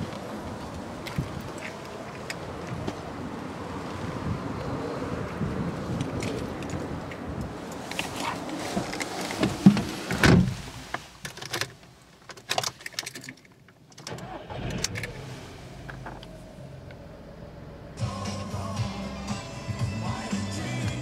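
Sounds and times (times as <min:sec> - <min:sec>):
car engine starting and idling: 0:13.8 - 0:21.0.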